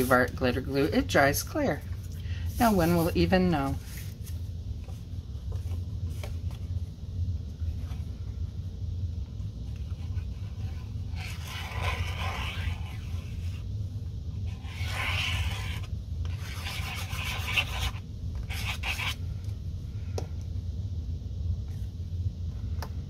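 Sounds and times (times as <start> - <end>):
steady low hum: 0.0 - 23.0
paper rubbing against paper: 2.5 - 4.2, 10.0 - 13.6, 14.5 - 19.2.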